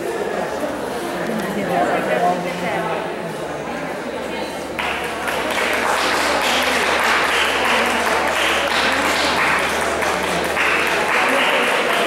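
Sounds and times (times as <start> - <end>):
spectators applauding: 4.7 - 12.0.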